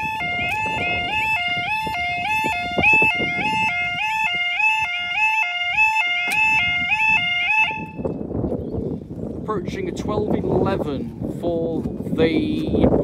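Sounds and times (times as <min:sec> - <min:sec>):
two-tone warbling crossing alarm: 0:00.0 - 0:08.2.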